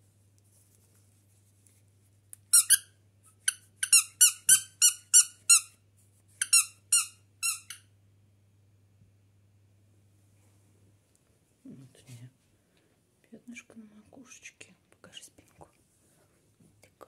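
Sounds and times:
squeaky dog toy squeaking: 0:02.5 - 0:05.8, 0:06.4 - 0:07.9.

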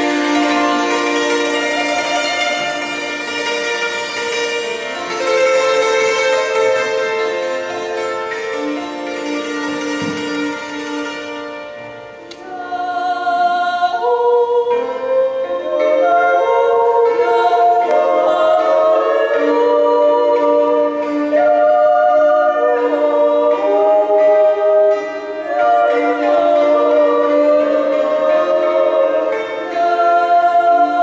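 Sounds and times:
hammered dulcimer: 0:00.0 - 0:31.0
women yodeling in harmony: 0:12.4 - 0:31.0.

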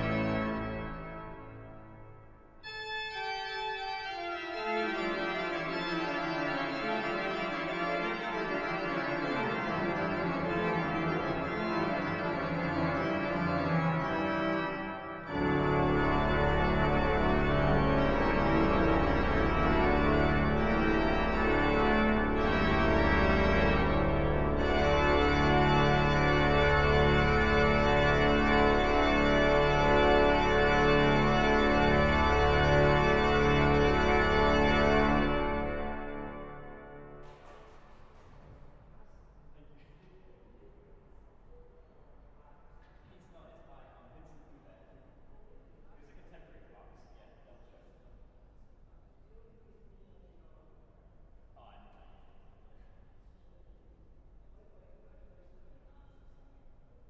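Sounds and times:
pipe organ chords: 0:00.0 - 0:38.4.

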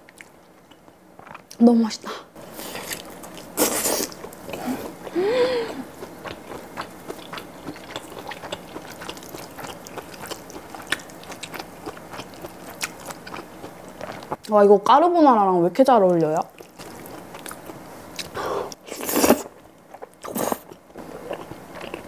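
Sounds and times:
wet chewing: 0:00.0 - 0:01.6, 0:05.8 - 0:14.5, 0:16.0 - 0:22.0.

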